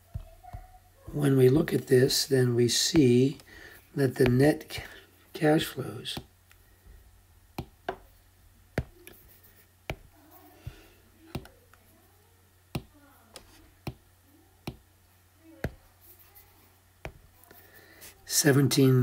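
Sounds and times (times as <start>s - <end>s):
stylus tapping on glass screen: 7.6s - 8.1s, 8.8s - 9.0s, 9.9s - 11.6s, 12.7s - 12.9s, 14.6s - 14.8s.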